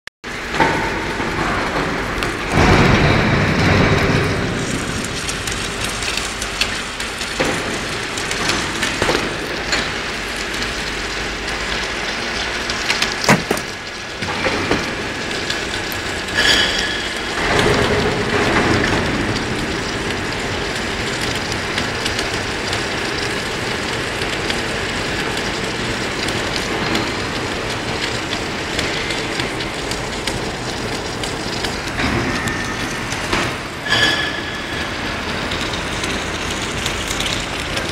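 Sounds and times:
sharp knocks: 0:13.2 - 0:13.8.

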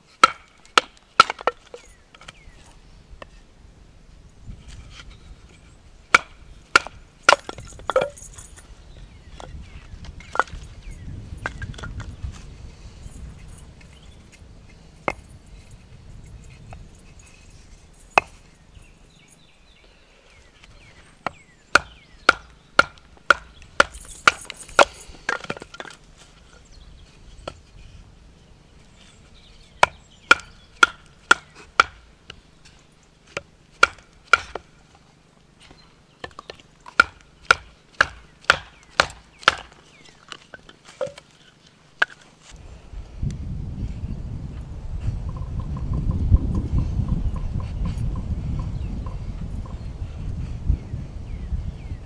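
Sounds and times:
wood chopping blows: 0:00.1 - 0:01.8, 0:06.1 - 0:08.3, 0:21.2 - 0:26.0, 0:29.8 - 0:32.4, 0:33.3 - 0:34.7, 0:36.2 - 0:39.9.

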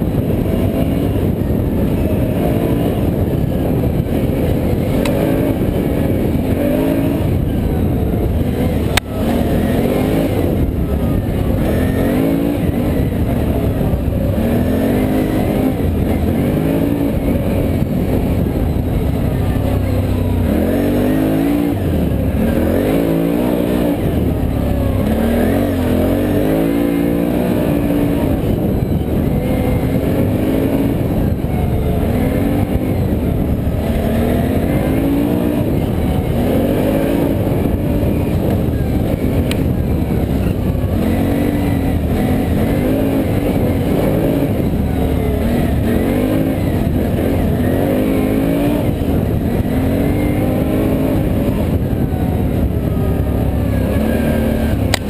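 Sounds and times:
atv engine revving: 0:00.0 - 0:55.0.

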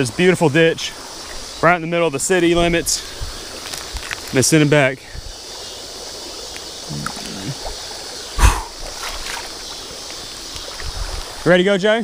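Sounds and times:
steady background hiss: 0:00.0 - 0:12.0
fish splashing in water: 0:07.0 - 0:11.4.

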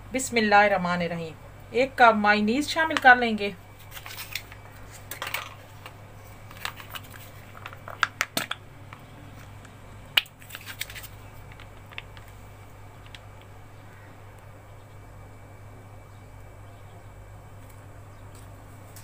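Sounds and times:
plastic pouch crinkling: 0:10.2 - 0:13.5.

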